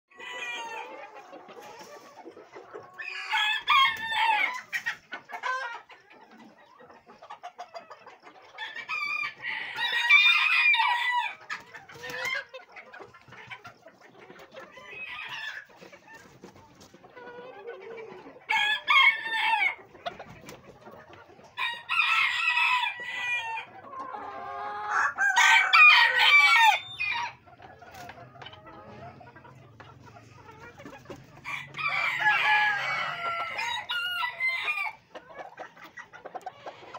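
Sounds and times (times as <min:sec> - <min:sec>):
roosters crowing: 0:00.1 - 0:01.2, 0:03.0 - 0:05.6, 0:08.6 - 0:12.4, 0:18.5 - 0:19.8, 0:21.5 - 0:27.5, 0:31.2 - 0:35.1
chickens clucking: 0:00.1 - 0:36.9.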